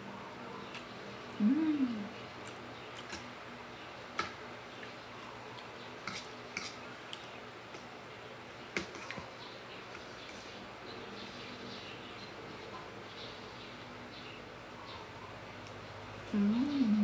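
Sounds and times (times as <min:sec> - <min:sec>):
fork scraping ceramic plate: 0:06.0 - 0:06.8.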